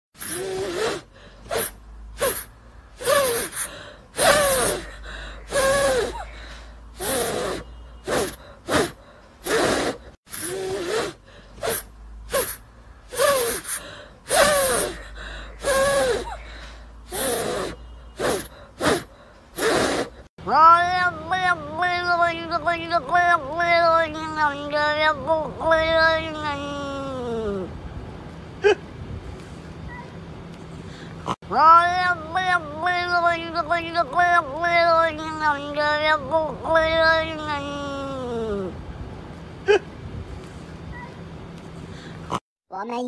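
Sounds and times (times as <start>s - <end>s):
hamster sneeze-like squeaks: 0.2s - 4.9s, 7.0s - 15.0s, 17.1s - 20.2s.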